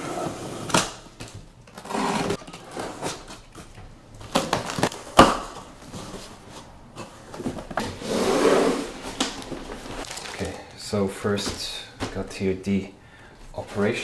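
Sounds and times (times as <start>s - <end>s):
cardboard flaps rustling: 8.8s - 10.5s.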